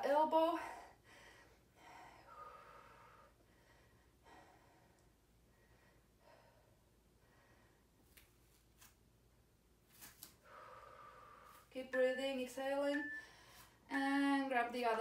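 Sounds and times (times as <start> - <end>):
faint breaths: 0.6 - 8.2, 10.4 - 11.8, 13.2 - 13.9.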